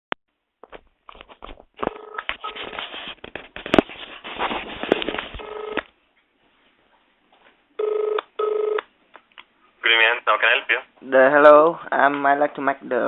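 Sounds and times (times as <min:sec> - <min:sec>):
crackling telephone line noise: 0:00.6 - 0:03.9, 0:04.8 - 0:06.0
phone ringing tone: 0:01.8 - 0:02.7, 0:05.4 - 0:05.9, 0:07.8 - 0:08.8.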